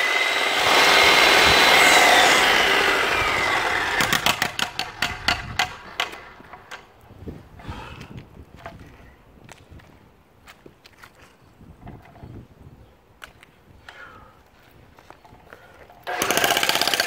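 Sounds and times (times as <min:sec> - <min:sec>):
jackhammer on concrete: 0:00.0 - 0:06.8, 0:16.0 - 0:17.0.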